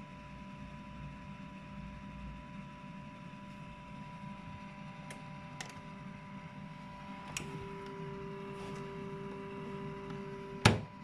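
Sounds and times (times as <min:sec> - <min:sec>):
lower electrical tone: 0:00.0 - 0:11.0
steady electrical tone: 0:00.0 - 0:11.0
washing machine clunk: 0:10.6 - 0:11.0.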